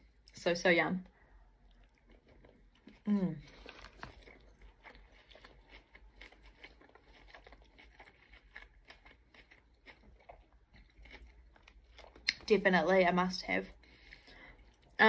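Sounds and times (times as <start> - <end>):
chewing mouth clicks: 3.6 - 12.5.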